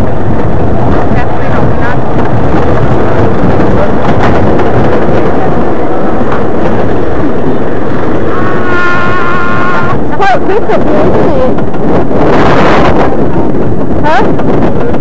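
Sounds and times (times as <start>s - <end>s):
roller coaster train rumbling: 0.0s - 15.0s.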